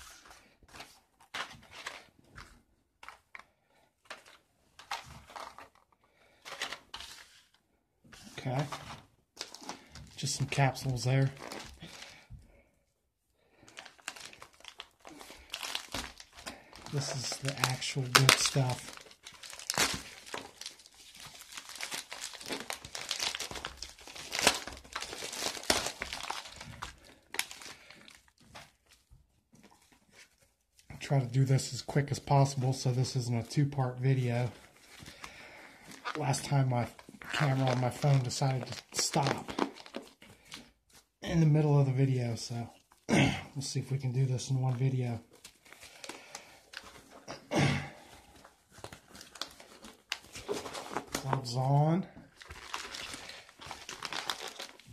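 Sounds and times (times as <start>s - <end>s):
plastic mailer crinkling: 0.0s - 3.4s, 4.0s - 7.6s, 8.3s - 12.2s, 13.6s - 29.0s, 34.1s - 40.7s, 48.0s - 54.9s
cards rustling and knocking: 0.0s - 12.0s, 13.7s - 27.8s, 48.1s - 51.5s.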